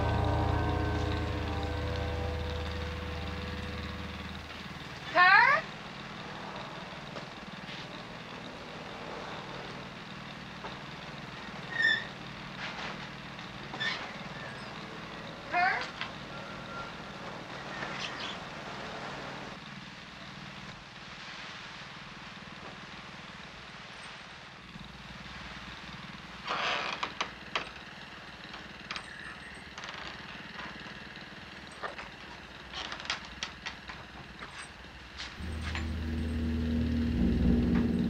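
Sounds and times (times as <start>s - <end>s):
loud low rumble: 0.0s - 5.3s, 35.4s - 38.0s
generator humming: 0.0s - 6.4s, 35.4s - 38.0s.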